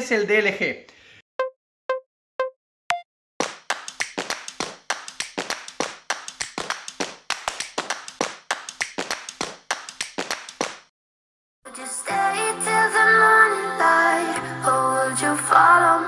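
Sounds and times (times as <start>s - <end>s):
sharp hand claps: 3.4s - 10.9s.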